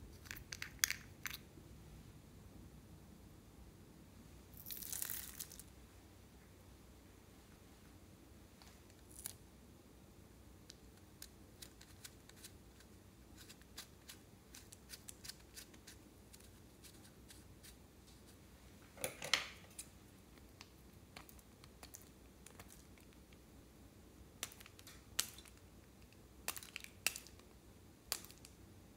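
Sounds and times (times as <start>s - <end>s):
crayons clicking and tapping: 24.4s - 27.5s.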